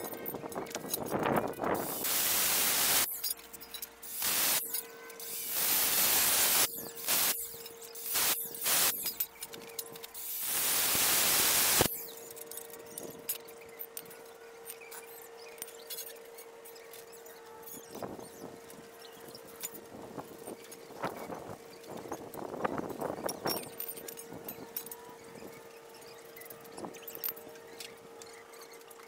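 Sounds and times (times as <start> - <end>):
metal pieces clicking and scraping: 0.0 - 16.2
angle grinder cutting steel: 1.8 - 3.3, 4.0 - 9.3, 10.0 - 12.1.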